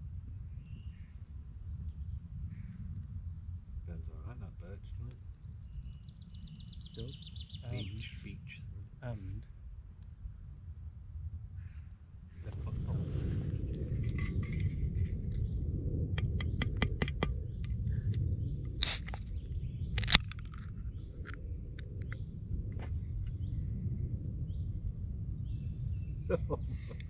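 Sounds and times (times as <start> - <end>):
steady low rumble: 0.0 - 27.0
can seal cracking: 18.8 - 19.2, 20.0 - 20.7.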